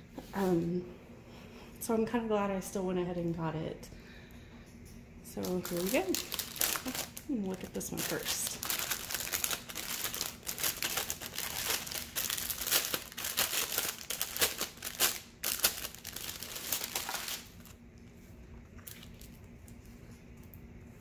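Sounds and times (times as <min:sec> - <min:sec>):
plastic bags crinkling: 0:05.4 - 0:17.8.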